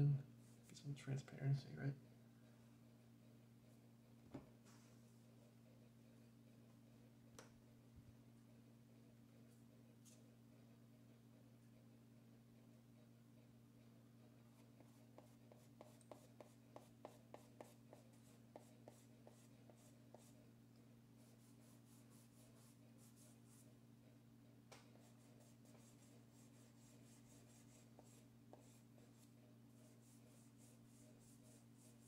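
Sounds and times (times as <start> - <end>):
steady low hum: 0.0 - 32.0
pastel strokes on paper: 14.6 - 20.4, 21.2 - 23.7, 24.9 - 32.0.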